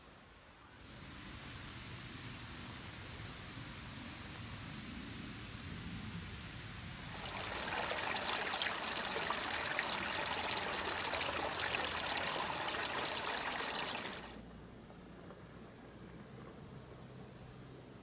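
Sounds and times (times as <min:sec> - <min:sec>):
stream running and splashing: 0:07.1 - 0:14.4.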